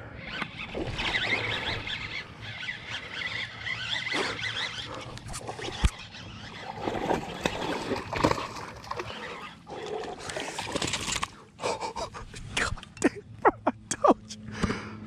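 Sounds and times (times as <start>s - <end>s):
fish splashing in water: 5.4s - 11.3s.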